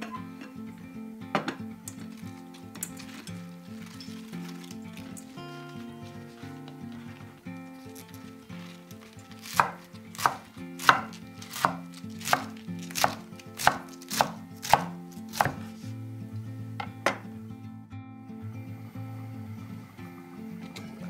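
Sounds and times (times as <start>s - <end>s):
knife chopping on wooden board: 9.3s - 15.8s.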